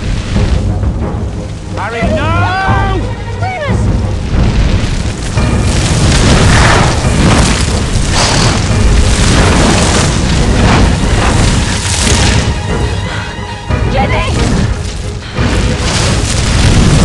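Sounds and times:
fire rumbling: 0.0s - 17.0s
flame whooshing surges: 4.0s - 13.1s, 14.3s - 17.0s.

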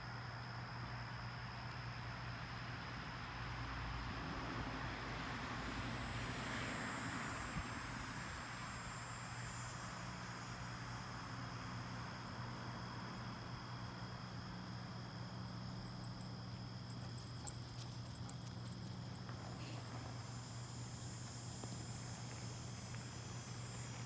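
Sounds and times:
insects chirring: 6.0s - 24.0s.

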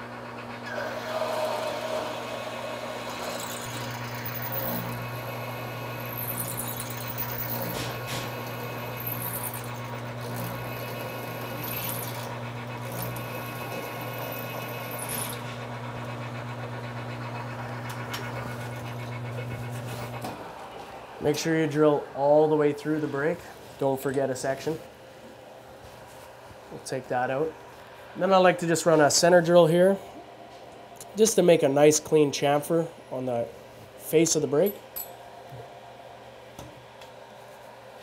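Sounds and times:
lathe motor hum: 0.0s - 23.6s
drill bit squealing: 0.6s - 20.2s.

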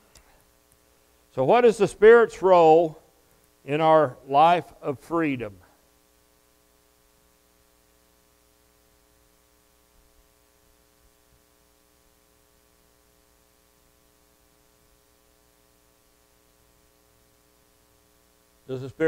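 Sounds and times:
faint electrical hum with hiss: 0.0s - 19.0s.

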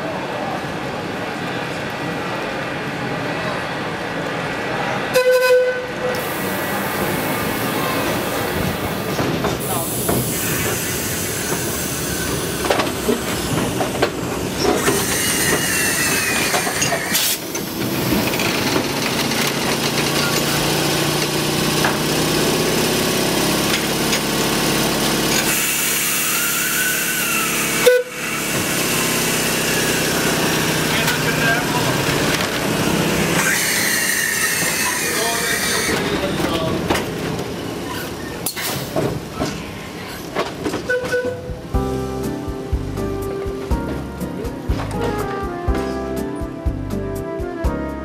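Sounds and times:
model train sounds: 0.0s - 41.8s
murmur of voices: 6.2s - 10.4s.

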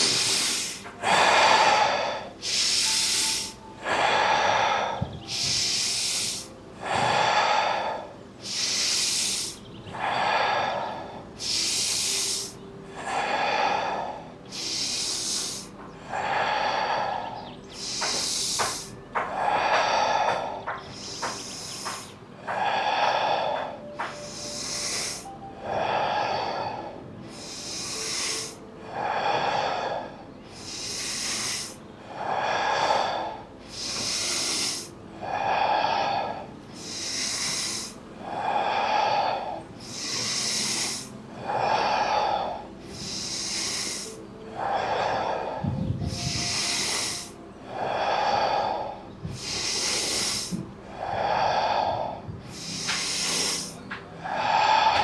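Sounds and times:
person breathing rhythmically: 0.0s - 55.0s.

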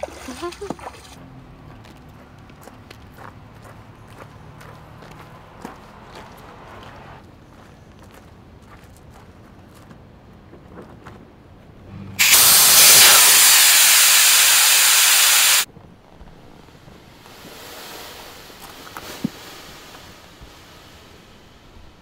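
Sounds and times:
air hissing out of valve: 12.2s - 15.7s.

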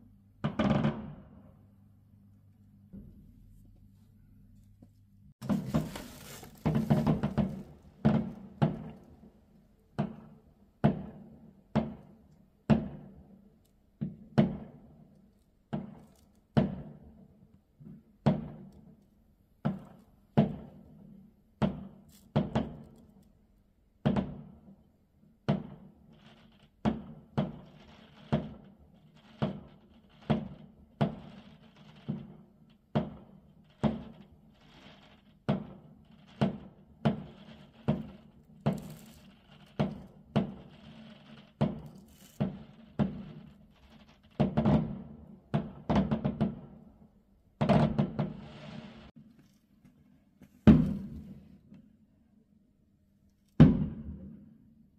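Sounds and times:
muffled fireworks bangs: 0.4s - 1.5s, 5.4s - 13.3s, 14.0s - 15.0s, 15.7s - 17.2s, 17.8s - 18.7s, 19.6s - 22.9s, 24.0s - 24.6s, 25.4s - 46.9s, 47.6s - 49.1s, 50.6s - 51.5s, 53.6s - 54.4s.

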